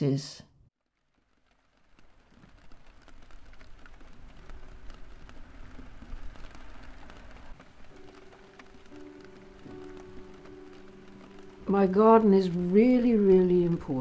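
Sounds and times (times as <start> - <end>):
scattered ticks and crackles: 0.8 - 14.0
soft music with held notes: 7.6 - 14.0.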